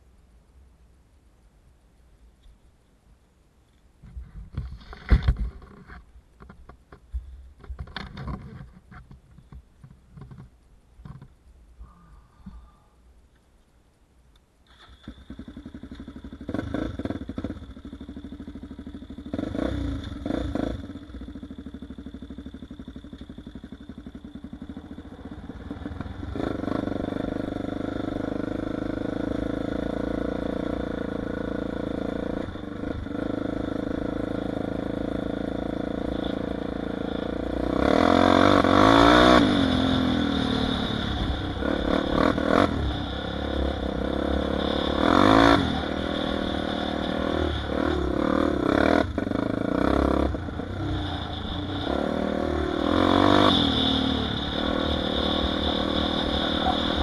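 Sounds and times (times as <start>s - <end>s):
atv engine idling and revving: 14.9s - 57.0s.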